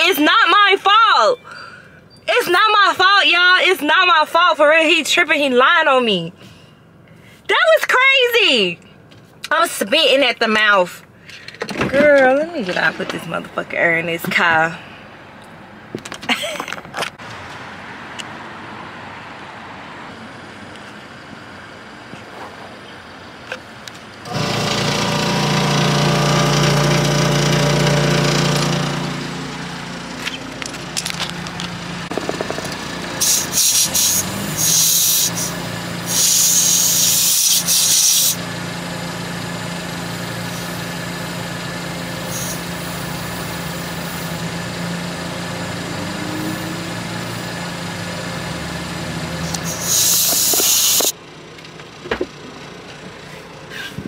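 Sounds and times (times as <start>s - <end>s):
motor running: 24.2s - 51.1s
short hissing bursts: 33.2s - 35.5s, 36.1s - 38.4s, 49.5s - 51.1s.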